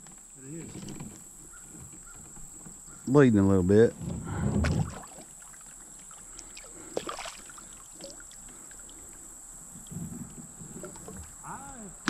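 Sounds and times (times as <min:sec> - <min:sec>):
water splashing and sloshing: 0:04.0 - 0:11.5.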